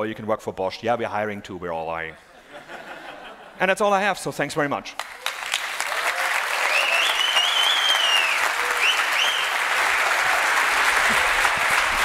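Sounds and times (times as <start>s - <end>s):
audience applauding: 5.0s - 12.0s
high whistling: 6.6s - 9.6s.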